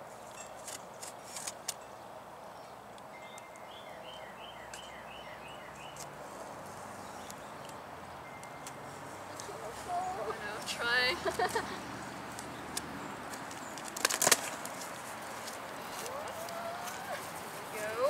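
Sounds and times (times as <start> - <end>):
outdoor ambience: 0.0 - 18.0
bird singing: 1.8 - 6.1.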